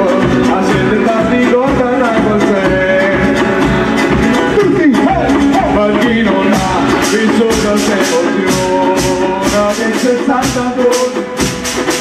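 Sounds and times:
percussion on wooden barrels: 0.0 - 12.0.

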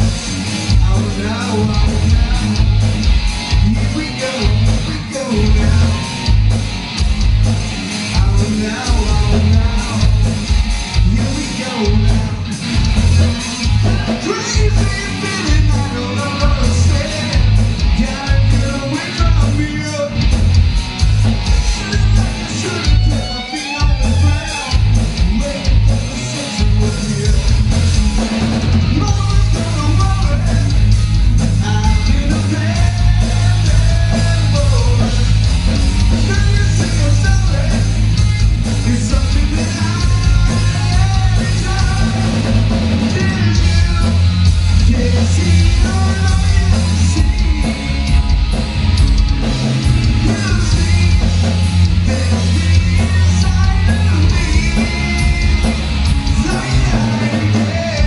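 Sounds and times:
rock band playing heavy metal: 0.0 - 58.0
person singing: 43.0 - 48.1, 50.0 - 58.0.

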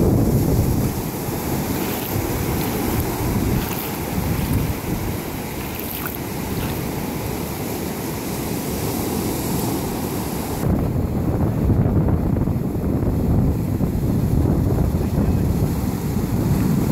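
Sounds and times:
wind buffeting microphone: 0.0 - 7.5, 10.6 - 16.9
ocean surf breaking: 0.0 - 11.4.

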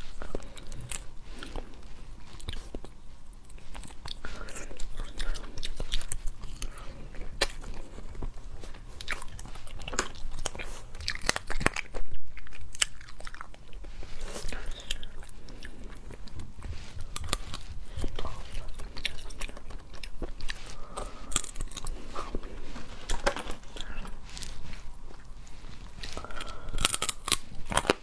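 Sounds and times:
wet chewing: 0.0 - 28.0
crab shell cracking and crunching: 9.0 - 13.8, 26.2 - 28.0.

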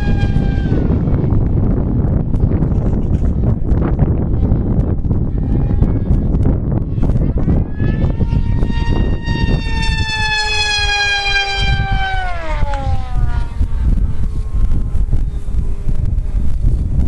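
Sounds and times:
wind rumble on microphone: 0.0 - 17.0
model plane motor whining: 7.1 - 13.8.

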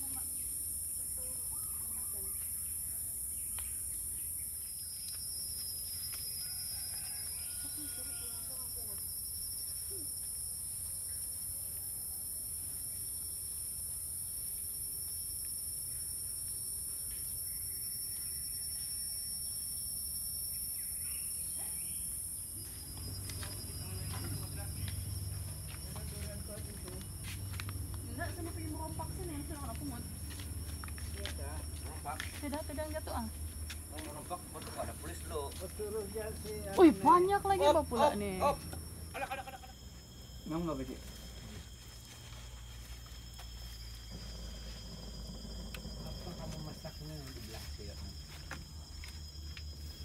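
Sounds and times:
faint bird chirps: 0.0 - 8.4
high-pitched insect drone: 0.0 - 50.0.

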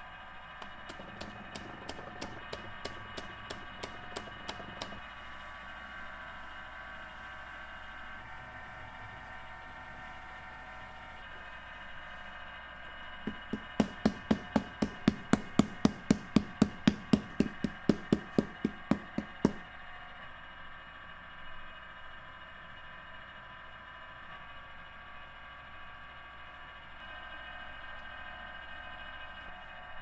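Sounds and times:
wooden paddle beating clay jar: 0.6 - 5.0, 13.3 - 19.7.

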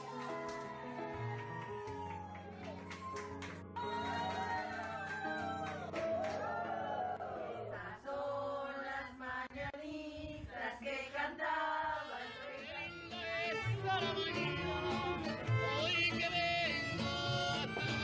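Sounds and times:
singing voices with music: 7.4 - 18.0.

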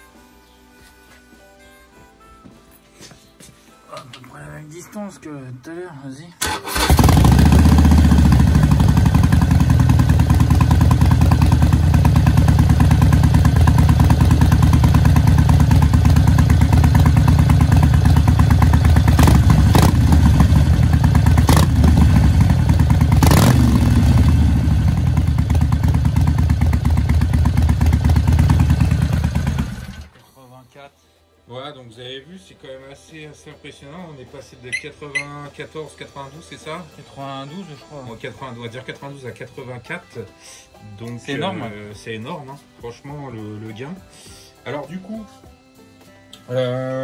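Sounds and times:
motorcycle engine idling: 6.8 - 30.2.

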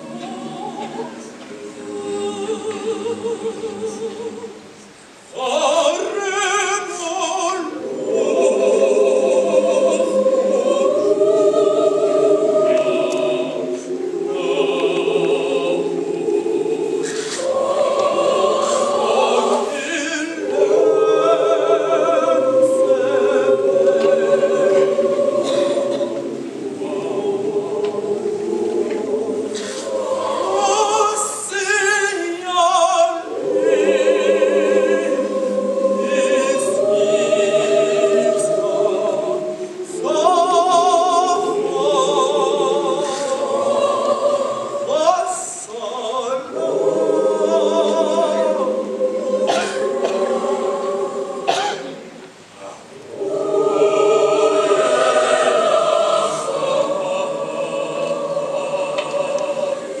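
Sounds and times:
children's choir singing: 0.0 - 60.0.

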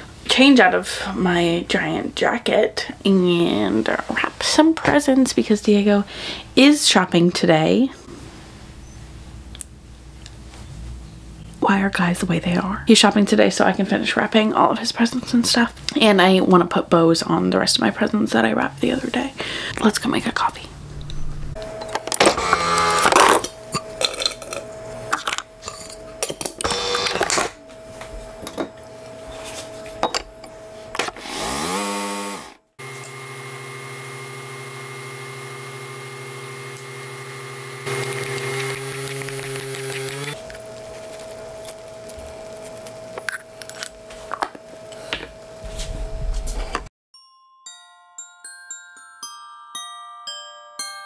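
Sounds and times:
coffee maker pump humming: 26.6 - 27.8, 31.7 - 45.0.

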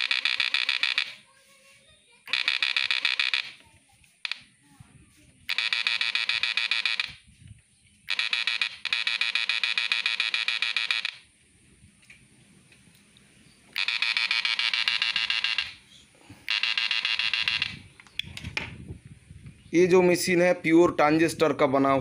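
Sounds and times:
electric inverter buzzing and pulsing: 0.0 - 1.1, 5.5 - 7.3, 8.0 - 11.4, 13.7 - 15.8, 16.4 - 18.4.

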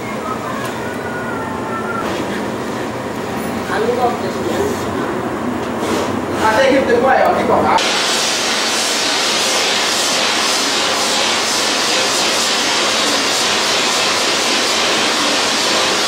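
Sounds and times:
laser welder rushing hiss: 7.8 - 16.0.

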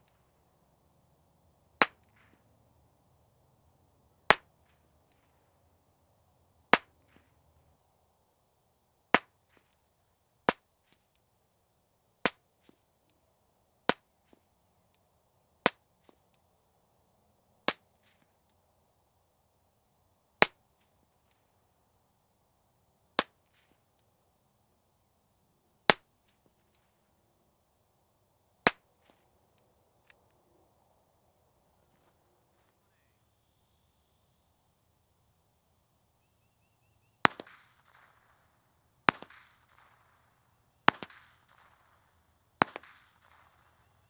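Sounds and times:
suppressed pistol shots: 37.2 - 38.5, 39.1 - 44.0.

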